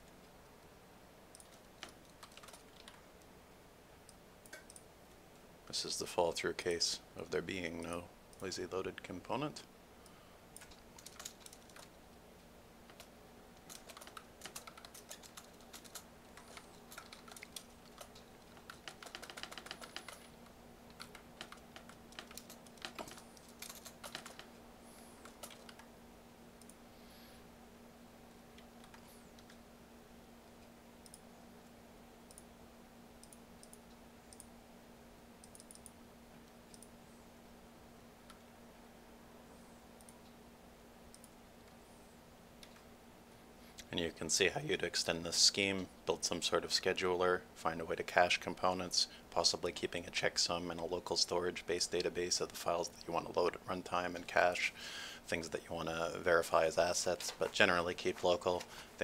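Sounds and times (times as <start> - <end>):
faint steady hum: 0.0 - 59.0
keyboard typing clicks: 1.3 - 3.0, 10.6 - 11.9, 12.9 - 20.3, 20.9 - 24.5, 35.4 - 36.0.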